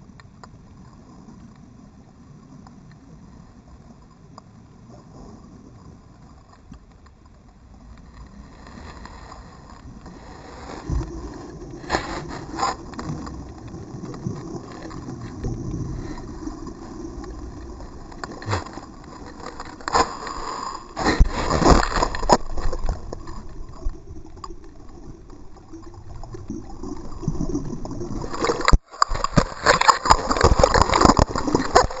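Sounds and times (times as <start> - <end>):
muffled underwater rumble: 0.0 - 32.0
knocks and scrapes on rock: 18.1 - 23.6, 28.3 - 32.0.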